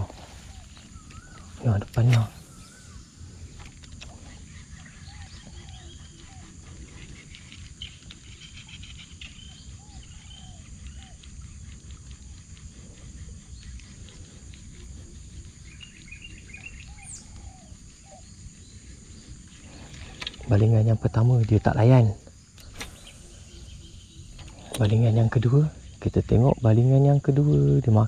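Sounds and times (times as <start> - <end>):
higher bird chirps: 0.0 - 7.2, 13.2 - 20.9, 21.6 - 26.0
birds calling: 0.0 - 28.0.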